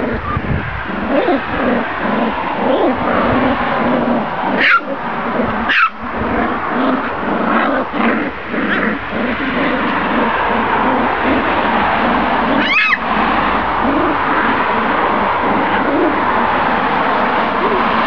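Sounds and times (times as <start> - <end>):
puppies growling and whining: 0.8 - 18.0
puppy high-pitched yelps: 1.0 - 3.5, 4.5 - 8.0, 12.1 - 13.1.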